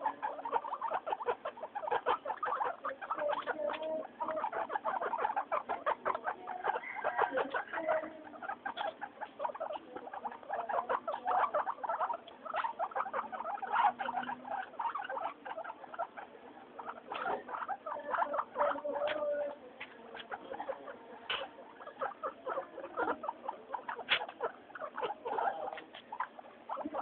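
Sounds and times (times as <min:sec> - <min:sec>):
guinea pigs squeaking: 0:00.0 - 0:27.0.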